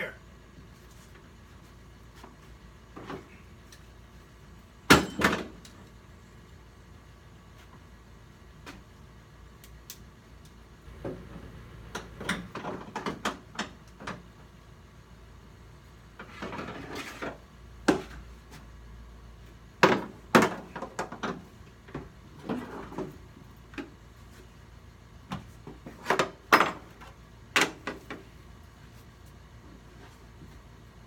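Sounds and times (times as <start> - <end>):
loud knocks on metal: 4.9 - 5.6.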